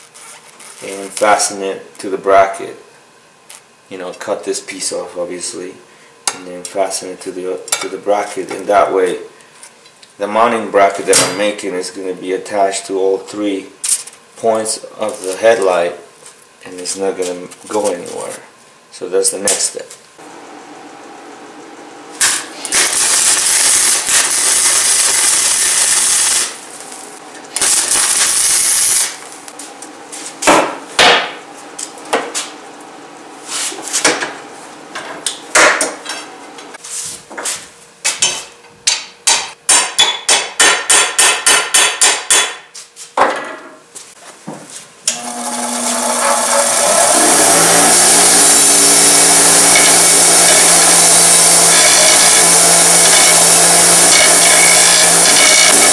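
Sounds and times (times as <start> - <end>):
bench grinder grinding steel: 22.2 - 26.6, 45.1 - 55.9
arc welding sputtering: 22.2 - 29.6, 45.1 - 55.9
hammer striking steel: 38.9 - 42.6.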